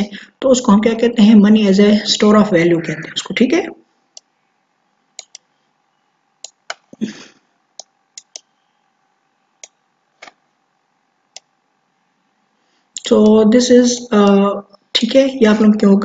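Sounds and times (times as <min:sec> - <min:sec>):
faint steady hum: 0:00.0 - 0:16.0
computer mouse clicking: 0:05.2 - 0:05.5, 0:06.4 - 0:07.0, 0:07.8 - 0:08.5, 0:11.3 - 0:11.5.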